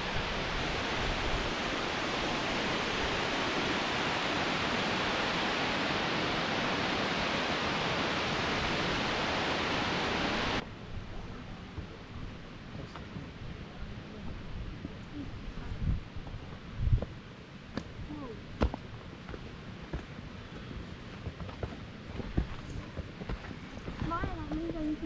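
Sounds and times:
waterfall rushing: 0.0 - 10.6.

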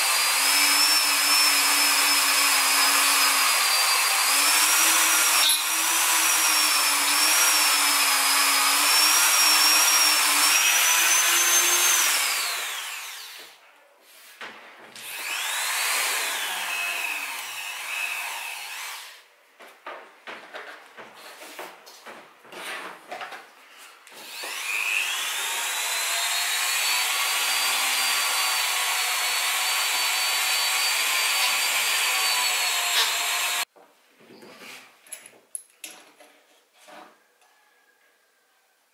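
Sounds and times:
rotary tool whining: 0.0 - 13.6, 15.0 - 19.2.

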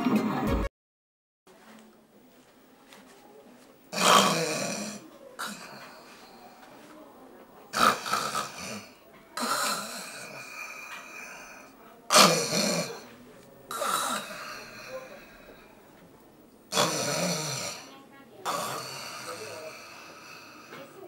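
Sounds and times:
man snoring loudly: 4.0 - 5.8, 7.7 - 13.0, 13.7 - 15.1, 16.7 - 17.9, 18.5 - 20.7.

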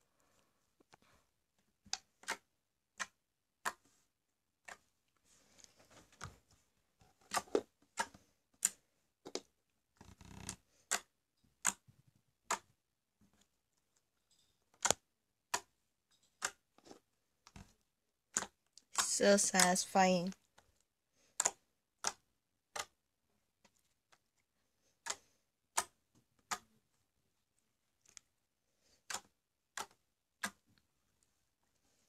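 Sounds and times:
slime squishing: 0.9 - 32.0
slime popping and clicking: 1.9 - 3.8, 14.7 - 15.7, 18.3 - 19.7, 21.4 - 23.0, 29.1 - 30.6.

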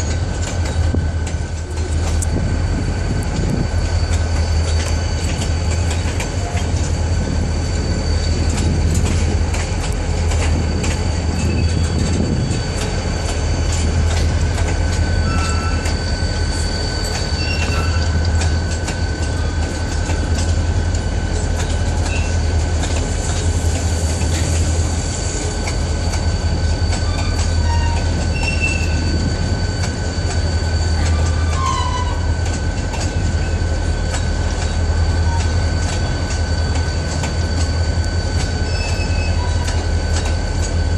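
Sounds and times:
low train rumble: 0.0 - 40.9
train wheels clicking and clanking: 0.0 - 40.9
high-pitched wheel squeal: 10.4 - 13.9, 14.8 - 19.6, 22.0 - 22.5, 25.4 - 32.4, 35.0 - 40.0
short squeaks: 14.8 - 19.0, 22.0 - 22.5, 26.1 - 33.6, 37.5 - 40.3.

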